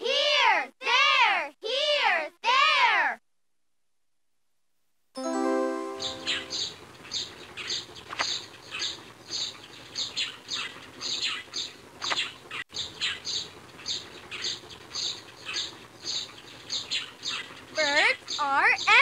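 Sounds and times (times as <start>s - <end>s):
small birds chirping: 6.0s - 19.0s.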